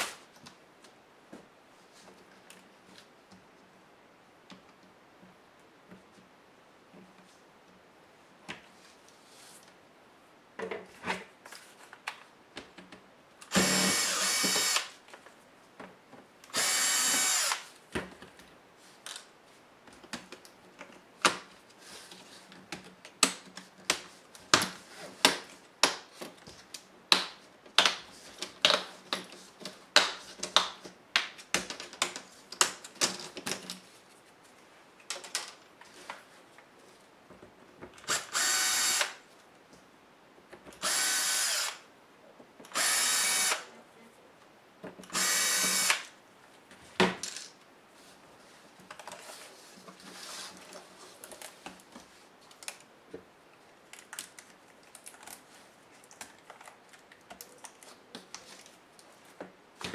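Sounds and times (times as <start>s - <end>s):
electric screwdriver whirring: 13.5s - 14.9s, 16.5s - 17.7s, 38.1s - 39.2s, 40.8s - 41.8s, 42.7s - 43.6s, 45.1s - 46.0s.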